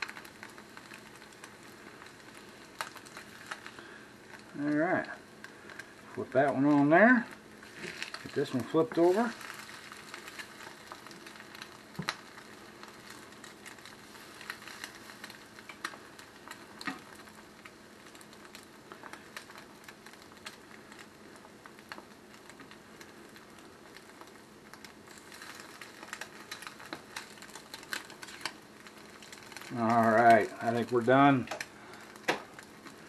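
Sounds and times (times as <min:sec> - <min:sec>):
egg sizzling in a skillet: 0:00.0 - 0:33.0
small pops: 0:09.2 - 0:30.5, 0:31.4 - 0:33.0.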